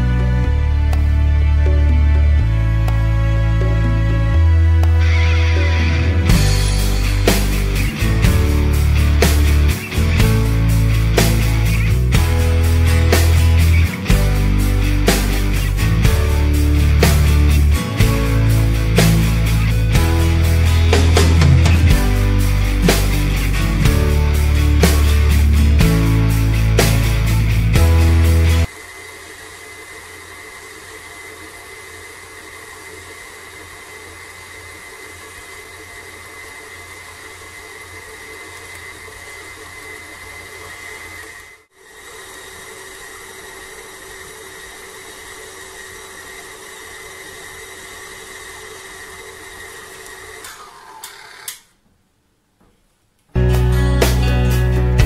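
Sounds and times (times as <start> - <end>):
stand mixer motor whining: 0.0 - 51.7.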